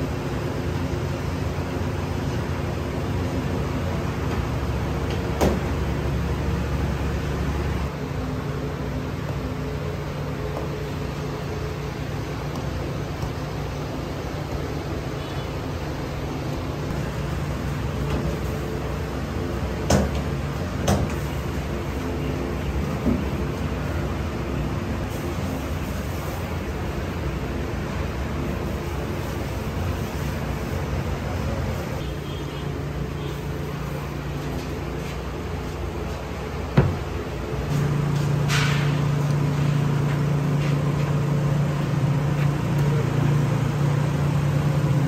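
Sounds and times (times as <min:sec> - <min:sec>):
low mechanical hum of machinery: 0:00.0 - 0:45.0.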